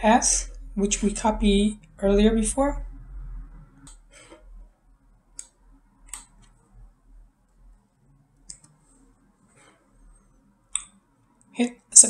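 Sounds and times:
low room hum: 0:00.0 - 0:12.0
mouse and keyboard clicks: 0:05.4 - 0:06.6, 0:08.4 - 0:08.8.

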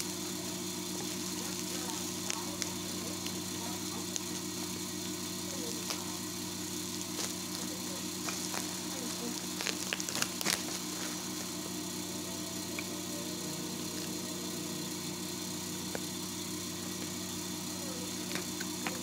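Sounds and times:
steady low hum: 0:00.0 - 0:19.0
plastic packaging rustling: 0:07.0 - 0:11.8.

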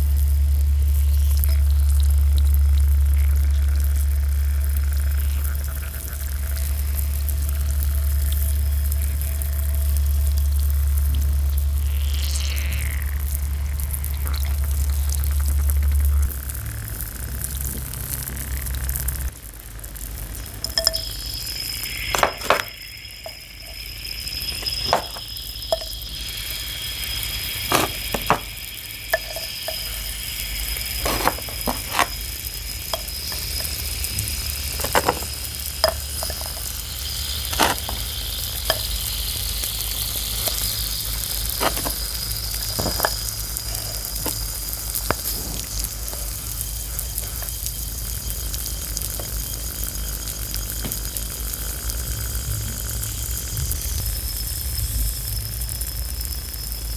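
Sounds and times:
chalk fizzing and crackling in water: 0:00.0 - 0:56.9
blocks clicking against glass bowl: 0:20.6 - 0:45.3.

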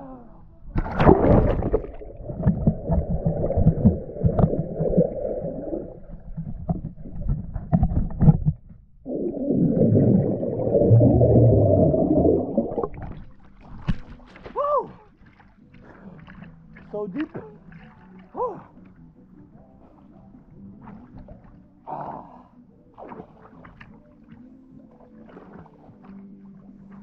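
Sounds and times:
bubbling water underwater: 0:00.7 - 0:14.3
clicks underwater: 0:00.7 - 0:14.5
splash: 0:00.8 - 0:08.3, 0:09.5 - 0:18.3, 0:22.9 - 0:27.0
swimmer exhaling bubbles: 0:00.8 - 0:08.4, 0:09.0 - 0:13.8.

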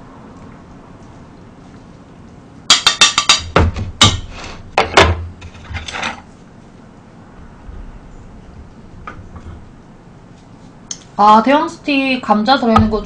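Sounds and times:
tongs and bowl knocking on pot: 0:02.7 - 0:05.2.

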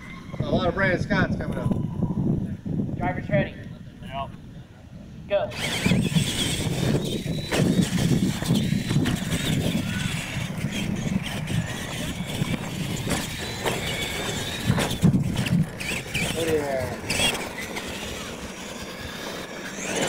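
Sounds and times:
toy truck motor whine: 0:05.5 - 0:20.0.

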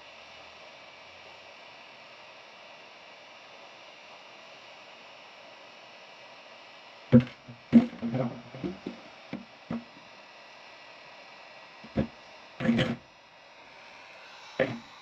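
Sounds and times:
circuit board knocking on metal pan: 0:07.2 - 0:09.0
heat gun hissing: 0:07.2 - 0:15.0.

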